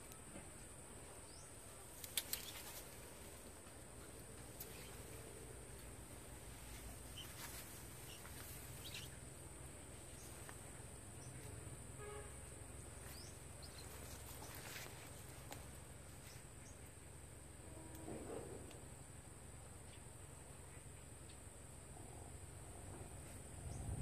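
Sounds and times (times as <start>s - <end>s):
insects droning: 0.0s - 24.0s
faint bird chirps: 1.0s - 3.4s, 4.0s - 15.4s.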